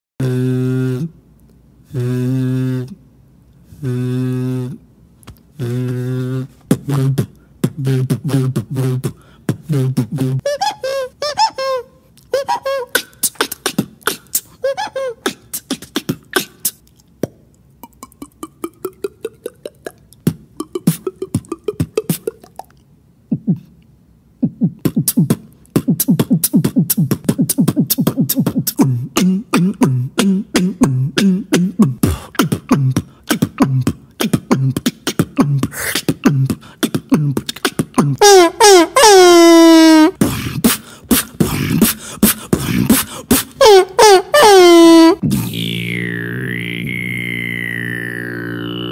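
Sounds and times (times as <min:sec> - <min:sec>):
beatboxing clicks and glides: 0:00.2 - 0:48.9
low pulsing tones: 0:45.2 - 0:48.9.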